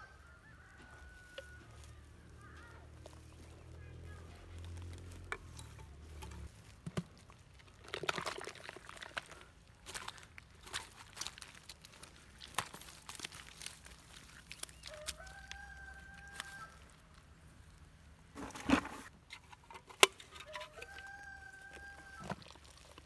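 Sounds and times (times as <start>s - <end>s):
rooster crowing: 0.0s - 2.6s, 14.8s - 16.8s, 20.4s - 22.4s.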